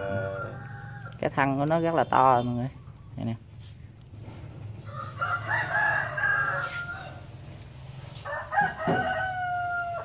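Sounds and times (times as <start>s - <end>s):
roosters crowing: 0.0s - 1.4s, 4.7s - 10.0s.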